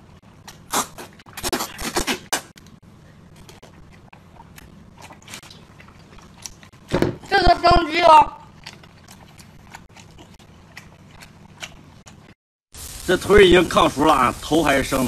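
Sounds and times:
chewing mouth sounds: 0:08.5 - 0:12.3.

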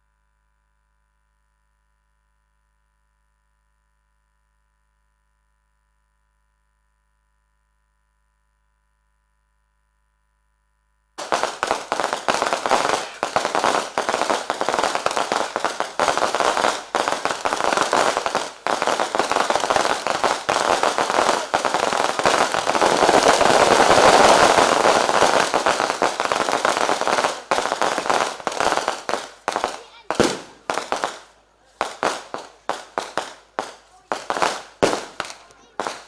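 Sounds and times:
fireworks crackling and popping: 0:11.2 - 0:36.0.

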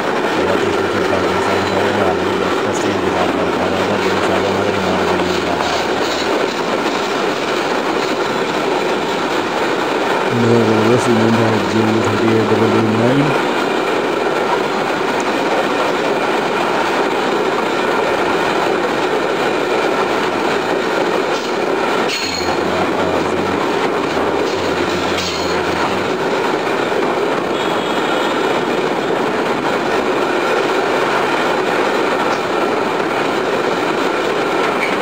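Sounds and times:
freight train wheels rumbling: 0:00.0 - 0:35.0
train clanks: 0:00.0 - 0:35.0
low hum: 0:20.3 - 0:26.9.

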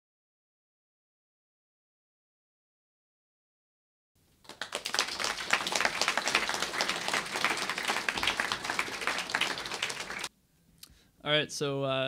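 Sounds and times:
audience applauding: 0:04.4 - 0:10.3.

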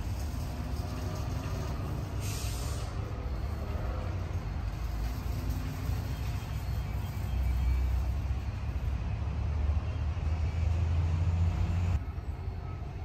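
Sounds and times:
hiss of air: 0:00.0 - 0:06.1
low outdoor rumble: 0:00.0 - 0:09.7.

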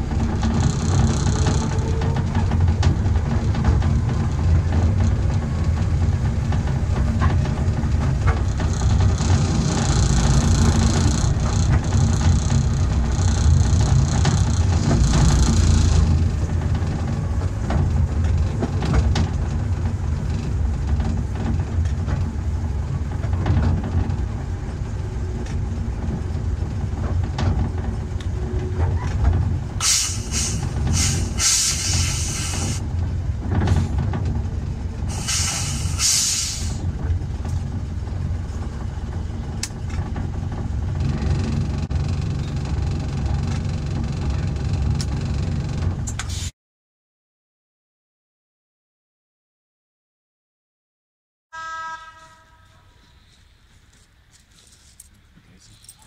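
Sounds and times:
train wheels rumbling on rail: 0:00.0 - 0:46.5
steam hiss: 0:29.8 - 0:32.8, 0:35.1 - 0:36.8.

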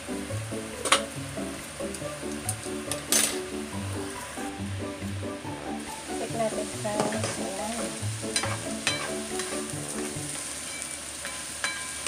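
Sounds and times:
soft background music: 0:00.0 - 0:10.6
onion and sausage sizzling in pan: 0:00.0 - 0:12.0
spatula scraping and tapping pan: 0:06.9 - 0:07.6, 0:08.3 - 0:12.0.

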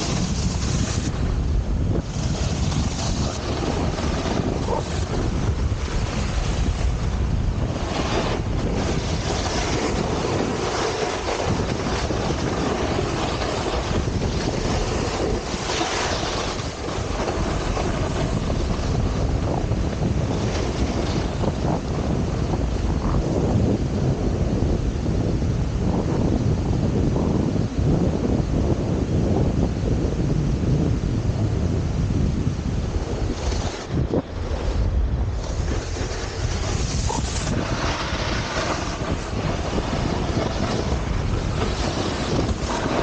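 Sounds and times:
snowboard scraping across snow: 0:00.0 - 0:29.7, 0:30.3 - 0:43.0
wind buffeting microphone: 0:00.0 - 0:43.0.

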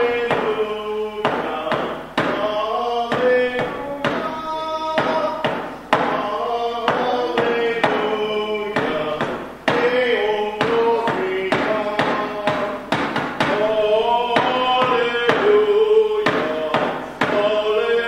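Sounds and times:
male choir singing in harmony: 0:06.0 - 0:12.8, 0:13.4 - 0:18.0.

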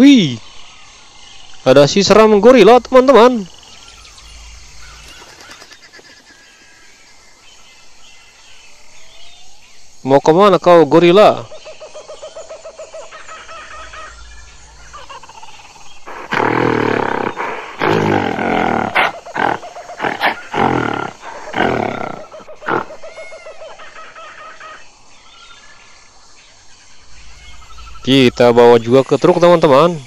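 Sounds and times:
gorilla roars and grunts: 0:11.9 - 0:24.9.

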